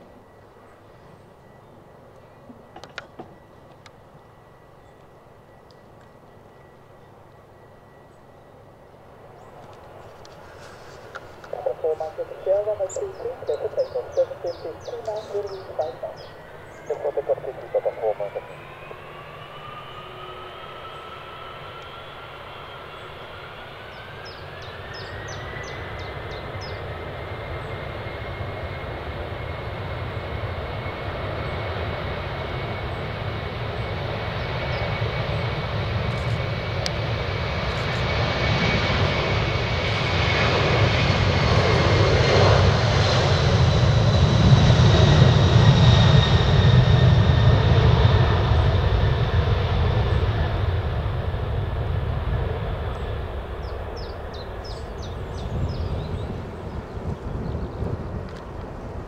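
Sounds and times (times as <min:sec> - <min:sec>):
jet engines roaring: 0:08.6 - 0:59.0
thin engine whine: 0:12.8 - 0:58.6.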